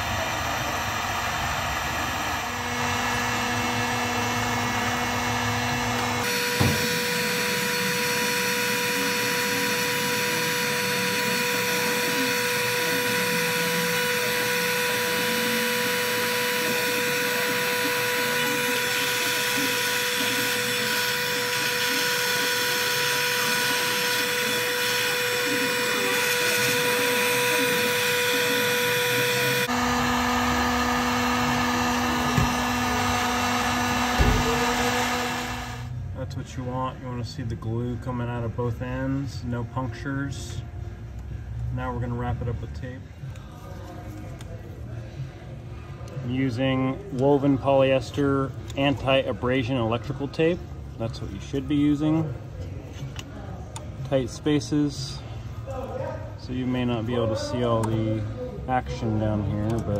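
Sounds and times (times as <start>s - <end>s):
heat gun blowing hot air: 0.0s - 35.9s.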